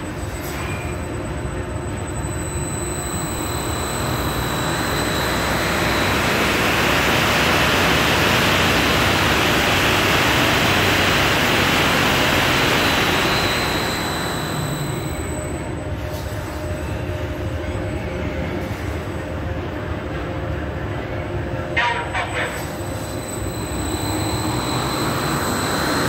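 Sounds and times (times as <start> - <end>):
high-pitched whine: 0.0 - 26.0
loud rushing machine noise: 2.3 - 15.6, 23.3 - 26.0.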